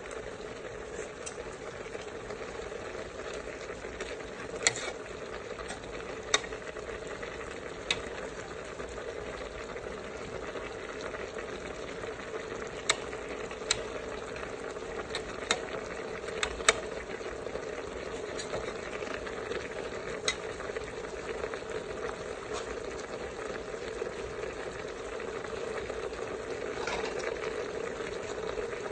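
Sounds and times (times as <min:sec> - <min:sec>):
food sizzling in a pot: 0:00.0 - 0:28.9
ladle clinking on pot: 0:26.8 - 0:27.4.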